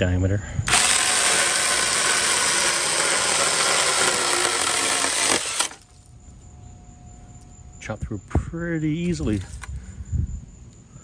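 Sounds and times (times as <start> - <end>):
electric chainsaw sawing branch: 0.7 - 5.9.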